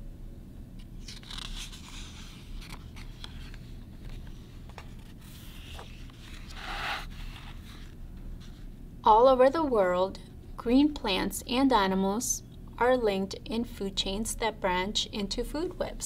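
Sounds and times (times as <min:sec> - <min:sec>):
book page rustling: 0:00.8 - 0:08.7.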